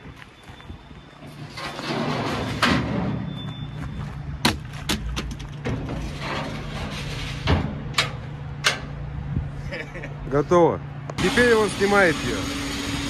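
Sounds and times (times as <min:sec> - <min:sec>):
metal ramp scraping: 0:01.2 - 0:03.8, 0:04.8 - 0:09.0
low engine hum: 0:03.1 - 0:11.2.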